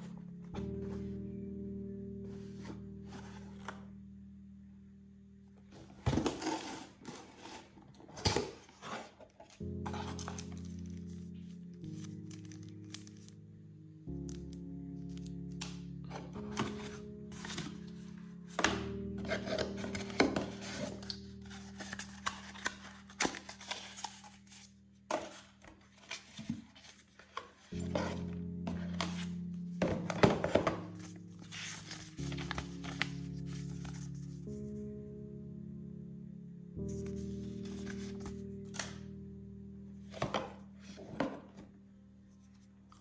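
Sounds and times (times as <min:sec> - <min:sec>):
background music: 0:00.0 - 0:07.6, 0:09.4 - 0:43.0
cardboard rustling: 0:05.7 - 0:11.2, 0:15.1 - 0:34.4.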